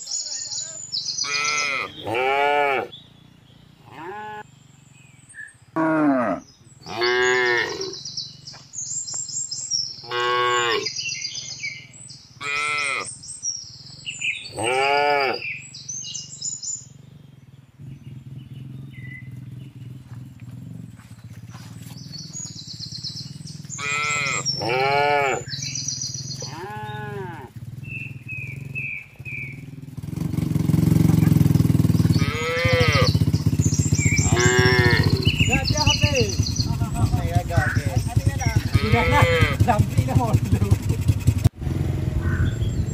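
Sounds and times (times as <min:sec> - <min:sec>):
cattle mooing: 0:01.2 - 0:02.9, 0:03.8 - 0:04.5, 0:05.8 - 0:08.0, 0:10.0 - 0:11.0, 0:12.4 - 0:13.2, 0:14.4 - 0:15.6, 0:23.7 - 0:25.7, 0:26.3 - 0:27.6, 0:32.1 - 0:33.2, 0:34.2 - 0:35.5, 0:38.5 - 0:39.8
steady low rumble: 0:15.9 - 0:24.6, 0:33.2 - 0:42.9.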